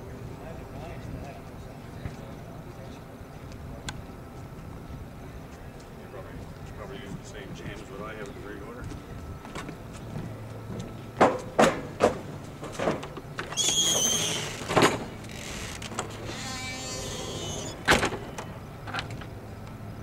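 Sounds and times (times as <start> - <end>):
haul truck engine humming: 4.0 - 20.0.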